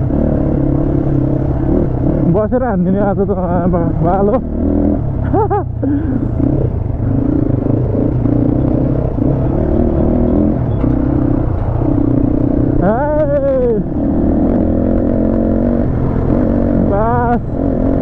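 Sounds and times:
motorcycle engine droning: 0.0 - 18.0.

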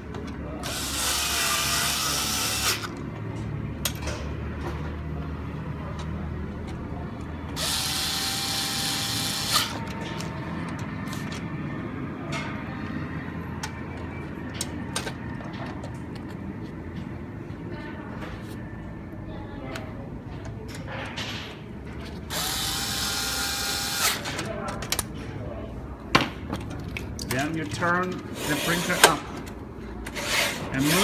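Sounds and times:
cordless screwdriver running: 0.6 - 2.9, 7.6 - 9.8, 22.3 - 24.2.

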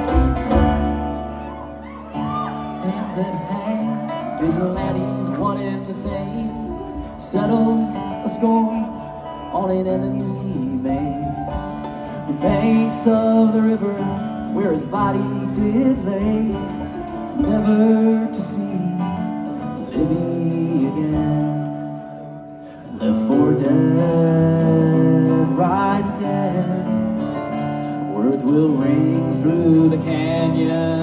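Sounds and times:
upright bass: 0.0 - 19.0
bluegrass string band playing: 0.0 - 31.0.

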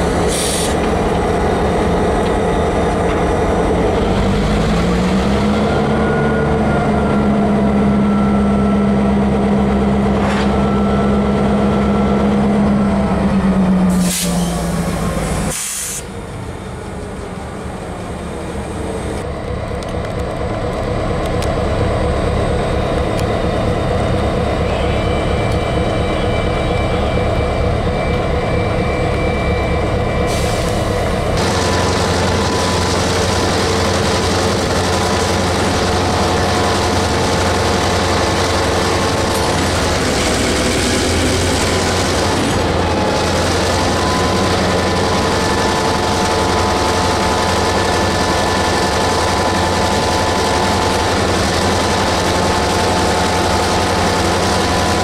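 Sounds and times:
diesel locomotives rolling past: 0.0 - 55.0.

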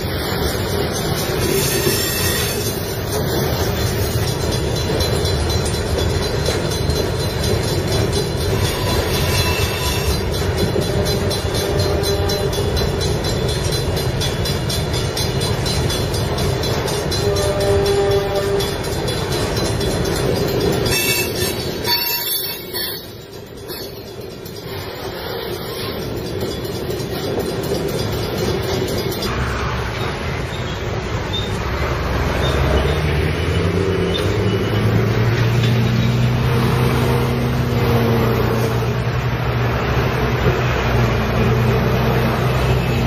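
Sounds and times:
train wheels rumbling on rails: 0.0 - 43.0.

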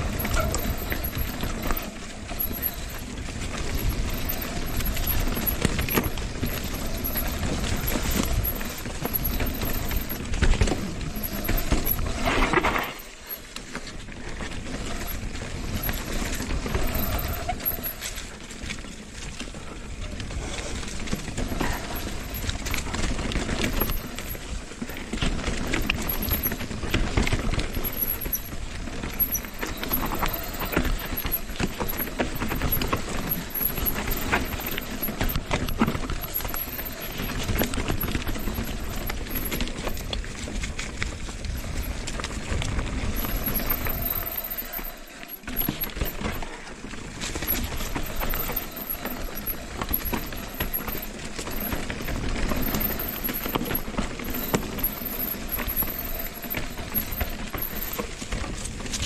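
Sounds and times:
bike clattering over bumps: 0.0 - 59.0
bike tyres crunching over rock: 0.0 - 59.0.

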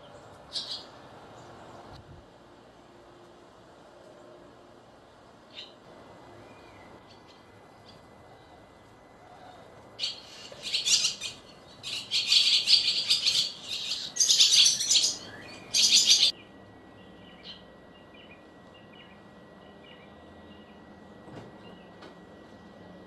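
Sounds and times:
nestlings chirping: 0.4 - 1.6, 10.0 - 16.4.

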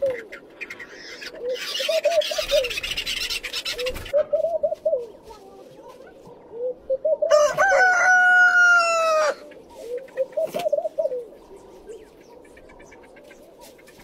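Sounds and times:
rooster crowing: 7.3 - 9.4.

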